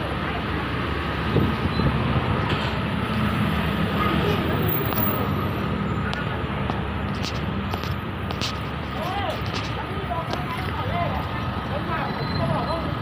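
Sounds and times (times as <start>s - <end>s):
car engines running: 0.0s - 13.0s.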